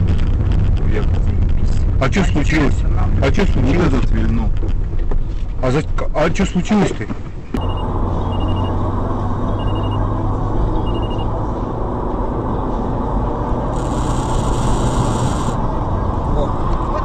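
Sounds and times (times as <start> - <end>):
car engine and road noise: 0.0 - 17.0
faint high beeps: 7.6 - 11.4.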